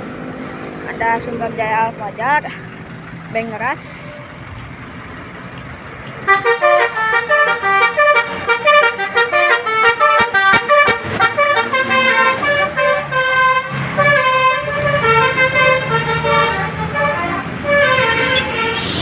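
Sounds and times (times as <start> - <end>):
bus engine rumble: 0.0 - 19.0
melodic bus air horn: 6.2 - 19.0.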